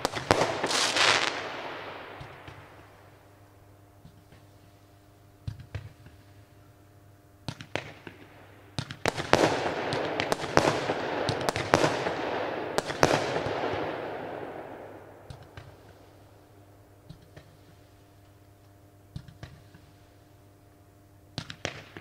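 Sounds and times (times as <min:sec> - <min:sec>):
firework launch pops and bangs: 0:00.0 - 0:01.5, 0:21.4 - 0:22.0
firework crackling shower: 0:00.0 - 0:03.3.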